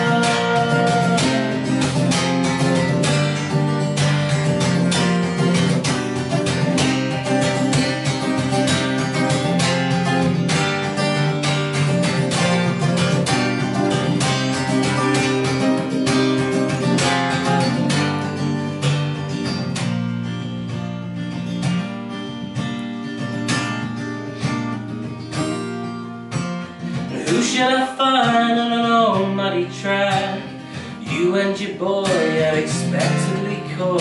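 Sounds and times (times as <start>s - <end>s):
man singing: 0.0s - 2.2s, 27.0s - 34.0s
acoustic guitar strumming: 0.0s - 34.0s.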